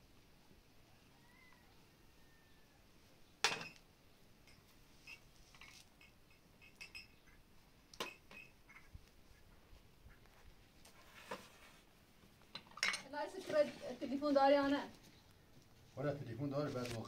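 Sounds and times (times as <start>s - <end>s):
glasses clinking on metal tray: 4.5s - 7.1s.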